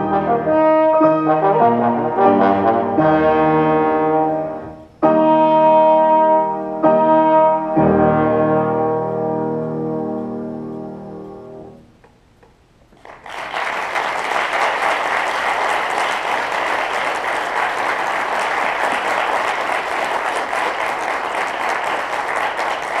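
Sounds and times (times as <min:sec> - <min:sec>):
audience applause: 0:13.0 - 0:23.0.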